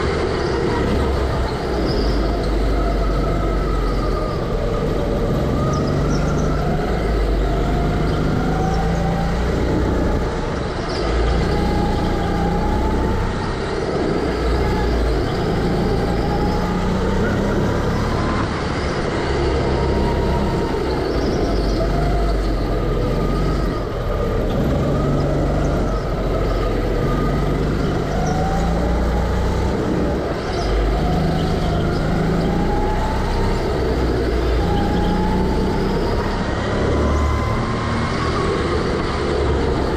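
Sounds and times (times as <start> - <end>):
go-kart motor revving: 0.0 - 39.9
low rumble and road noise: 0.0 - 39.9.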